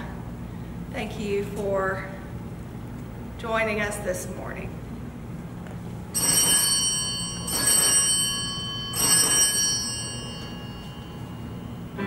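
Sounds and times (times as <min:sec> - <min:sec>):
small bell ringing: 0:06.2 - 0:12.0.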